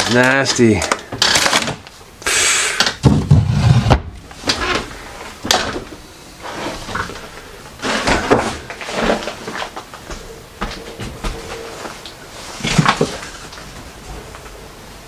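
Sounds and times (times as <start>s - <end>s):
plastic container scraping on shelf: 3.3s - 4.9s
footsteps and handling knocks: 4.4s - 14.6s.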